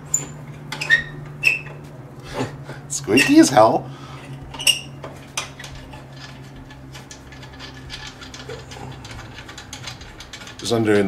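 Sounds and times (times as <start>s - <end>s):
steady low hum: 0.0s - 11.0s
wrench clicking on bolt: 5.4s - 10.7s.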